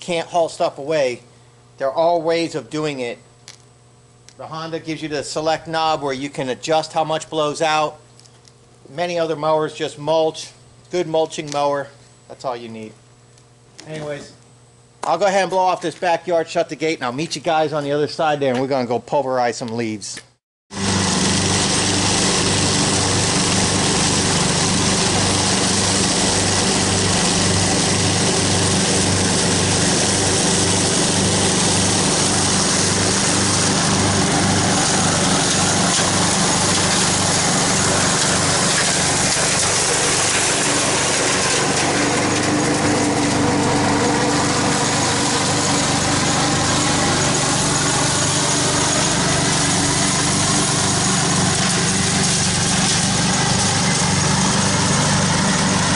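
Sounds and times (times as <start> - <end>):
mower mulching dry leaves: 20.7 - 55.9
riding lawn mower engine: 20.7 - 55.9.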